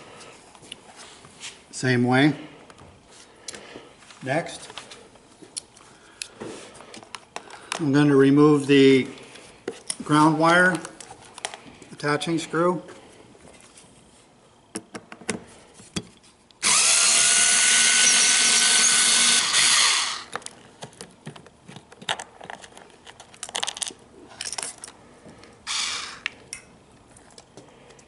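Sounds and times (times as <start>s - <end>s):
cordless power screwdriver running: 16.6s - 20.3s, 25.7s - 26.2s.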